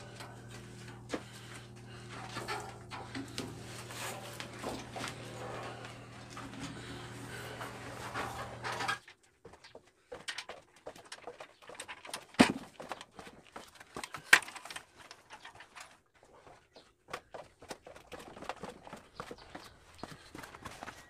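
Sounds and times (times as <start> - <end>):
footsteps on wooden stairs: 0.0 - 8.2
metal parts knocking and rattling: 10.1 - 16.0.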